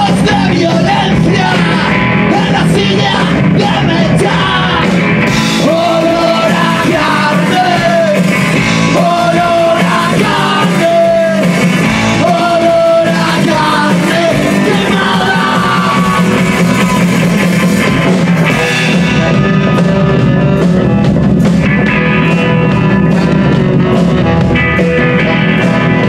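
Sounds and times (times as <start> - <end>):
man singing: 0.0 - 17.0
live rock band: 0.0 - 26.0.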